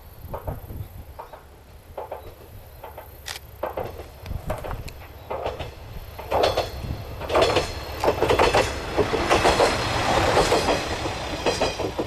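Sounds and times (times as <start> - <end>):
railcar wheels clacking: 0.0 - 12.0.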